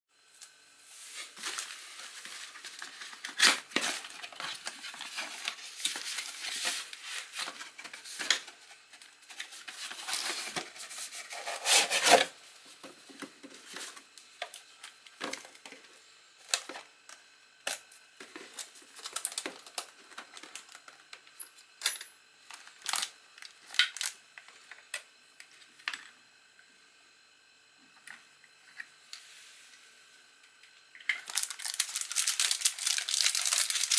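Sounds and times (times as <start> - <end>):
plastic wrap rustling: 31.2 - 33.9.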